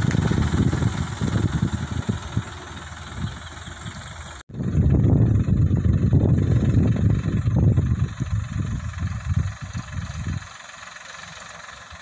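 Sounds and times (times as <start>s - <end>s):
tractor diesel engine driving past: 0.0s - 12.0s.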